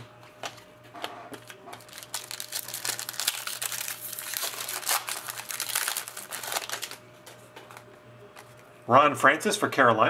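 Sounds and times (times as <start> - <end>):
foil wrapper crinkling: 1.4 - 7.8.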